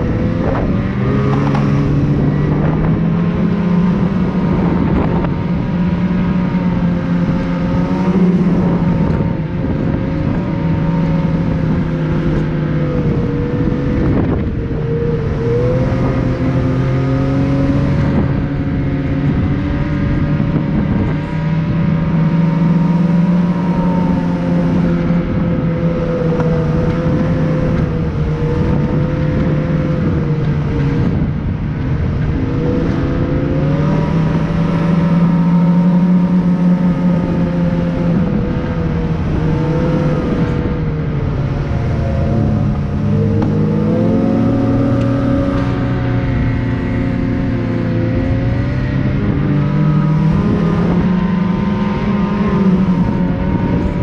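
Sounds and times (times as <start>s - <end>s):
vehicle engine running: 0.0s - 54.0s
wind and road noise: 0.0s - 54.0s.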